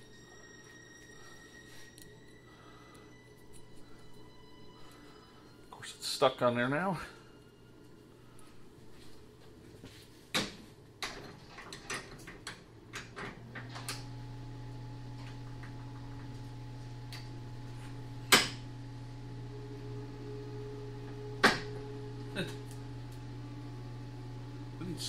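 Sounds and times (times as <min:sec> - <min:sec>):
steady low hum: 0:00.0 - 0:11.4, 0:12.6 - 0:25.0.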